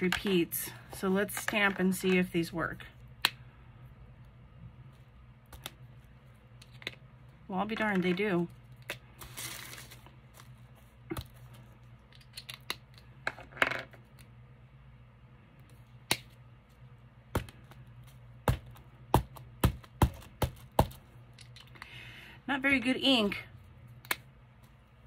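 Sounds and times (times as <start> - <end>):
paper rustle: 9.2 - 10.9.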